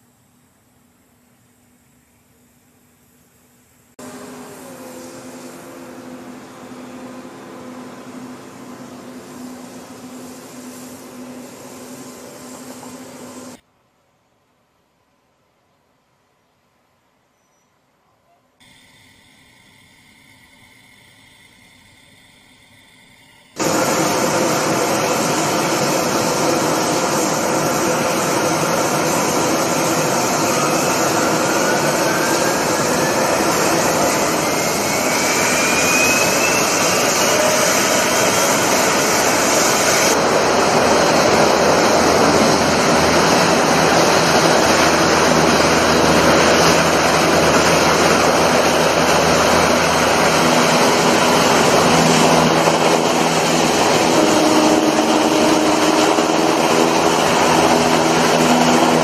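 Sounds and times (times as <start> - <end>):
hovercraft turbines and fans roaring: 4.0 - 13.6, 18.7 - 59.0
rising engine whine: 4.0 - 13.6, 19.6 - 59.0
sand blasting: 4.0 - 13.6, 23.6 - 59.0.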